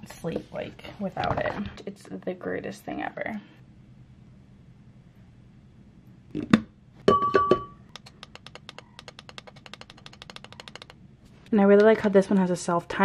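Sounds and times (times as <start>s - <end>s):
fast even ticking: 7.9s - 11.0s.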